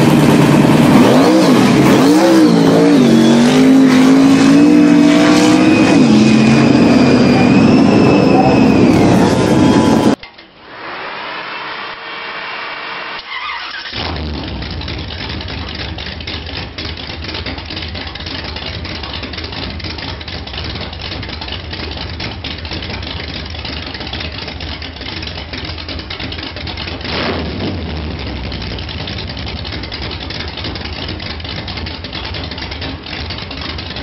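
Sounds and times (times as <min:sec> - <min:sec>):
engine revving: 0:00.0 - 0:10.2, 0:10.8 - 0:20.0, 0:26.6 - 0:31.9
motorcycle engine cranking: 0:13.2 - 0:27.1, 0:28.3 - 0:34.0
motorcycle engine idling: 0:13.9 - 0:27.1, 0:28.1 - 0:34.0.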